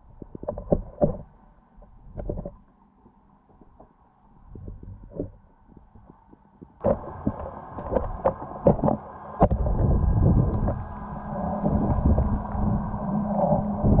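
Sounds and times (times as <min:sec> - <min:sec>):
muffled underwater knocks: 0:04.6 - 0:10.8
underwater rushing water: 0:06.8 - 0:14.0.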